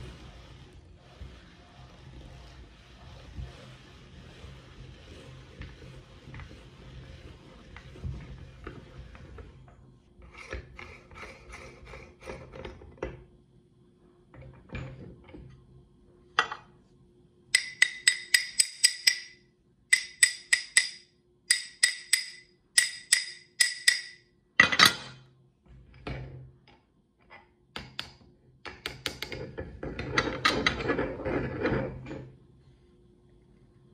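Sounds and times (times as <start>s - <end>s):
scraping and rustling: 0.0s - 12.8s
rapid ringing metal taps: 17.6s - 24.2s
metal parts clinking and knocking: 17.6s - 25.2s.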